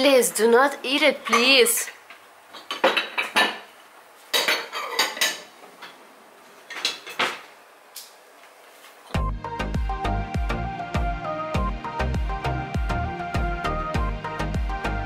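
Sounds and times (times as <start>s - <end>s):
dishes and cutlery clattering: 2.5s - 3.7s, 4.3s - 6.0s, 6.7s - 7.5s
music with a beat: 9.2s - 15.0s.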